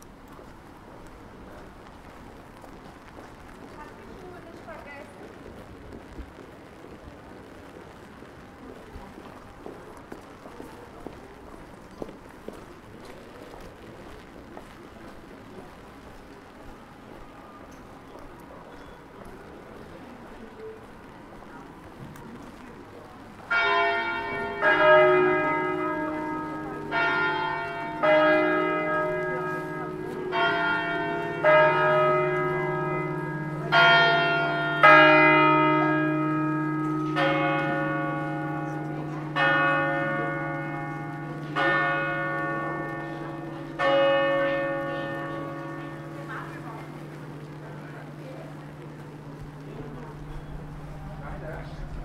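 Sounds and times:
church bells ringing: 23.5 - 52.0.

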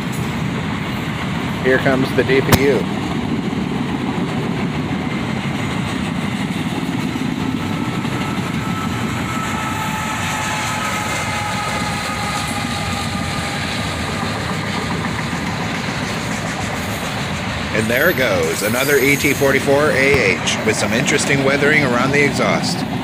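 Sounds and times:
diesel locomotive engine running: 0.0 - 23.0
train wheels on rails: 0.0 - 23.0.

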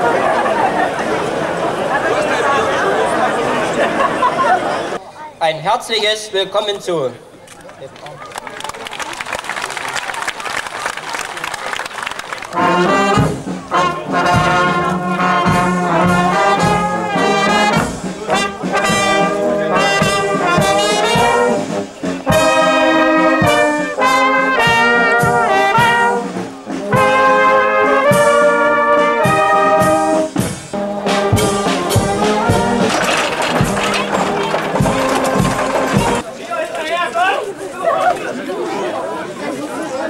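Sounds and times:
marching brass band playing: 12.4 - 36.2.

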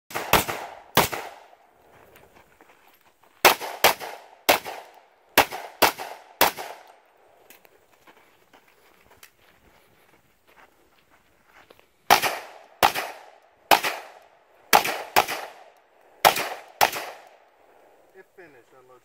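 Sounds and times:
pistol shots with echo: 0.1 - 1.6, 3.4 - 7.0, 12.1 - 17.5.

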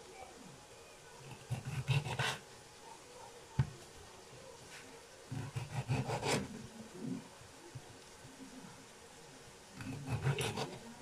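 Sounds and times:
knife sawing through tomatoes: 5.4 - 6.5, 9.8 - 10.8.

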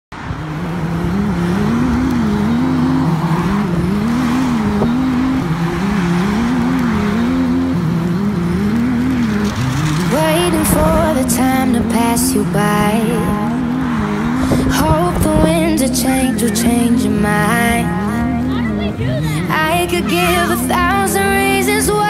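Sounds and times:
person singing: 10.0 - 22.0.

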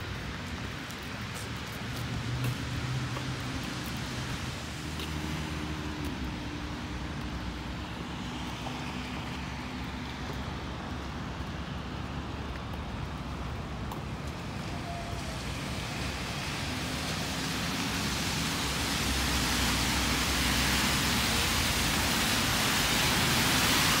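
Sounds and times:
tyres hissing on wet pavement: 0.0 - 24.0.

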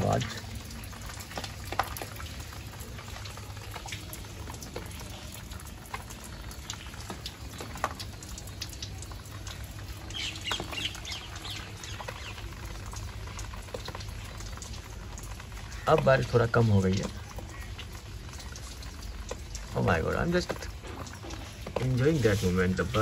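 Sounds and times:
rain pattering on rooftops: 0.0 - 23.0
water drips: 0.0 - 23.0
birds chirping: 6.2 - 23.0.

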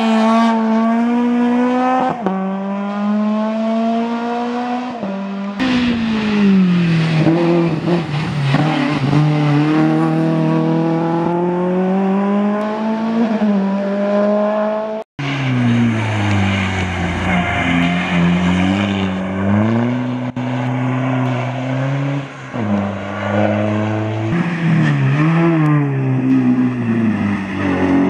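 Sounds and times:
rally car engines braking and accelerating: 0.0 - 28.0.

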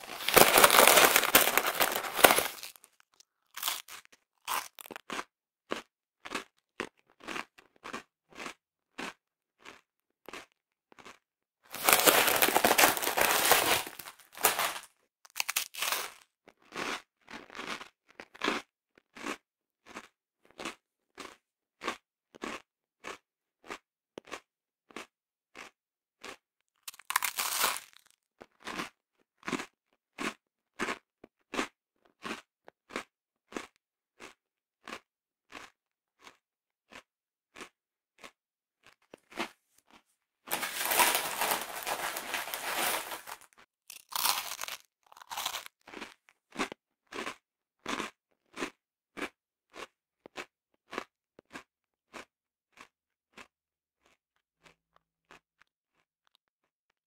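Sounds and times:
person chewing crunchy biscuits: 0.0 - 56.5.

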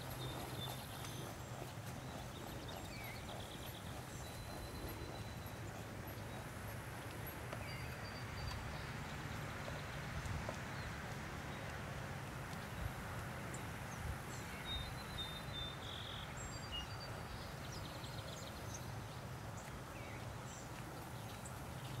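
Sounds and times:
horse hoofbeats on grass: 0.0 - 15.8
outdoor background noise: 0.0 - 22.0.

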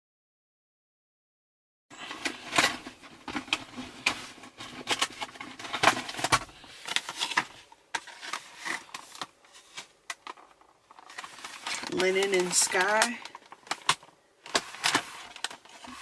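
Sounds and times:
packaging crackling: 2.2 - 16.0
plastic clicks: 4.8 - 16.0.

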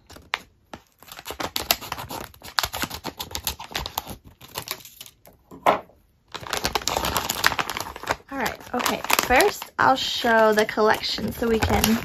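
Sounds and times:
scissors snipping plastic foil: 0.0 - 5.2, 6.4 - 12.0.

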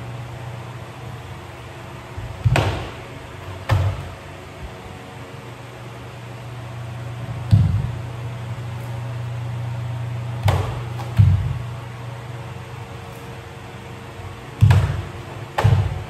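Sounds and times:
steady low hum: 0.0 - 16.0
bare feet thudding on wood: 2.2 - 4.2, 7.4 - 8.0, 10.4 - 11.7, 14.6 - 16.0.

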